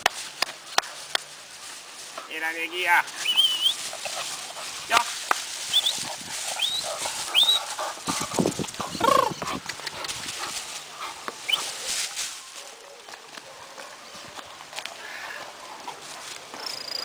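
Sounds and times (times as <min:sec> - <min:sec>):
rustling in dry grass: 0:00.0 - 0:16.9
puppy chirps: 0:03.2 - 0:03.8, 0:05.7 - 0:07.6, 0:08.9 - 0:09.9
puppy whining: 0:05.7 - 0:07.7, 0:08.8 - 0:09.7.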